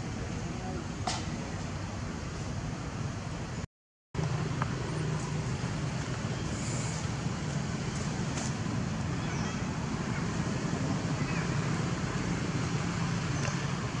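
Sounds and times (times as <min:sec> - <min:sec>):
low outdoor background rumble: 0:04.2 - 0:14.0.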